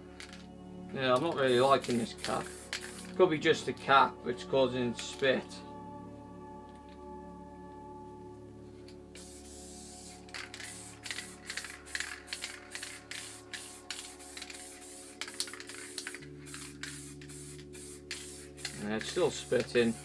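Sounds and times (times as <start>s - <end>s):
spray paint can hissing: 1.2s - 3.2s, 9.1s - 20.0s.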